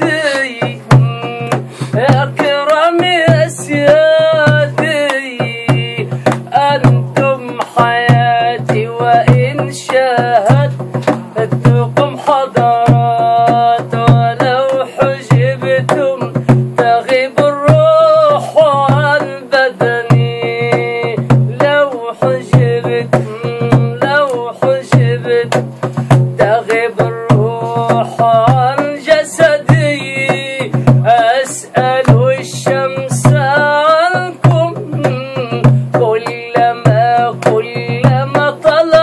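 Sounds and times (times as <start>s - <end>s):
steady drum beat: 0.0s - 39.0s.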